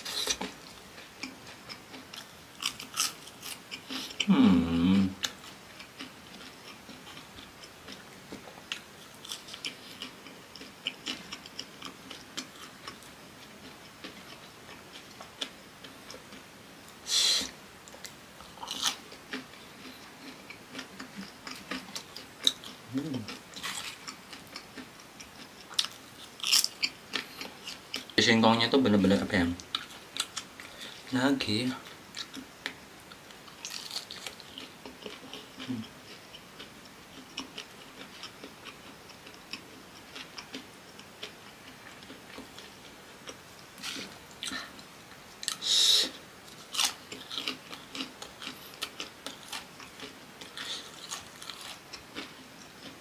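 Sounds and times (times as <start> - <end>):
chewing crunchy food: 0.1 - 4.3, 5.2 - 28.2, 28.9 - 31.1, 31.7 - 53.0
person humming: 4.2 - 5.3, 22.9 - 23.3, 35.7 - 35.9.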